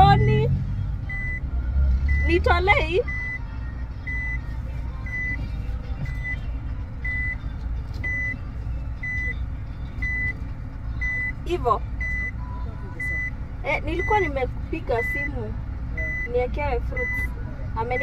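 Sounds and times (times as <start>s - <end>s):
car engine rumbling: 0.0s - 18.0s
reverse warning beeper: 3.1s - 3.4s, 4.1s - 4.4s, 7.0s - 7.4s, 12.0s - 14.3s, 16.0s - 17.3s.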